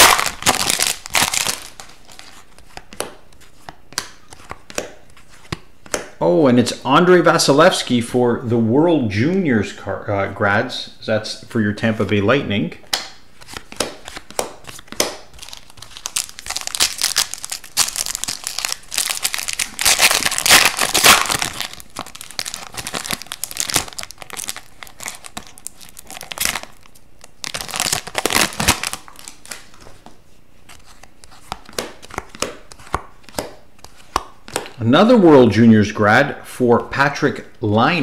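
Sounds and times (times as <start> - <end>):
foil wrapper crinkling: 0.0 - 2.6, 13.6 - 29.8
cards flipping clicks: 12.8 - 23.0, 30.7 - 34.8.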